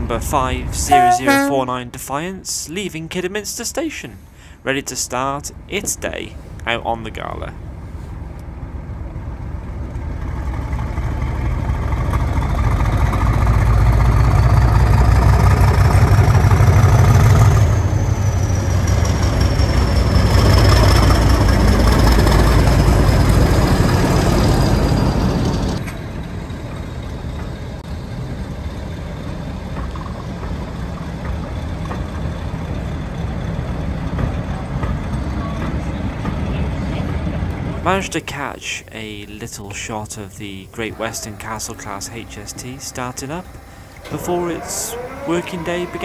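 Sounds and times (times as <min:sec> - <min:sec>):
diesel locomotive engine: 0:00.0 - 0:46.0
high whistle: 0:00.9 - 0:01.6
coaches rumbling by: 0:32.9 - 0:46.0.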